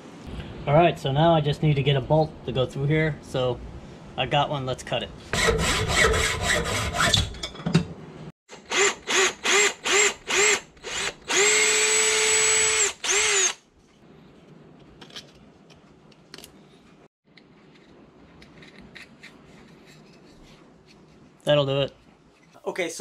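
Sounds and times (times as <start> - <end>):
cordless drill boring wood: 8.6 - 13.6.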